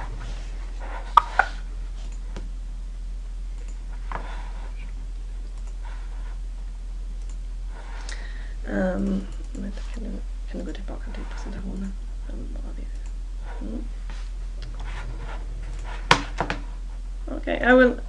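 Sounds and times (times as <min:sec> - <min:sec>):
low electrical hum: 0:00.0 - 0:18.0
computer mouse clicks: 0:05.5 - 0:05.8, 0:07.2 - 0:07.4.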